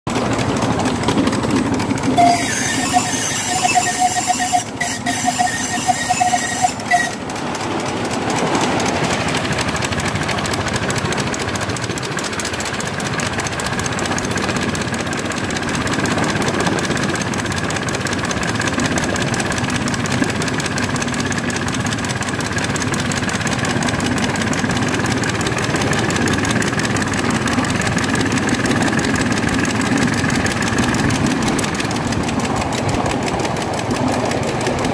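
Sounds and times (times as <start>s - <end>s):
miniature steam locomotive running: 0.1s - 34.9s
wheels on rails: 0.1s - 34.9s
high steam whistle: 2.2s - 7.4s.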